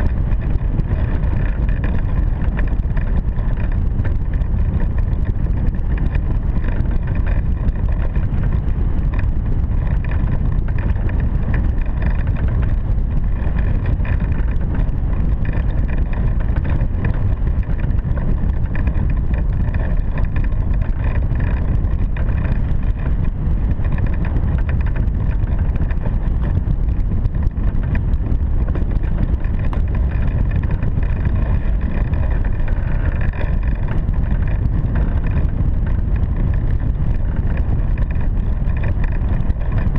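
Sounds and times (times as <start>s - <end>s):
airflow buffeting microphone: 0.0s - 39.9s.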